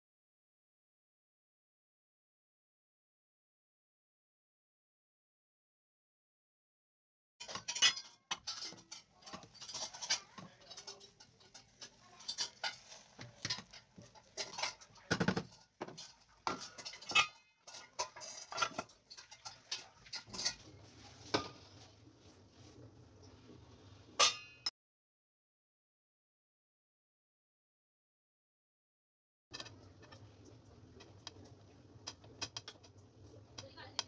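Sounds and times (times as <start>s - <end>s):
steel pot lid clinking: 7.4s - 20.7s
wooden spoon scraping metal pot: 7.4s - 24.3s, 29.6s - 34.0s.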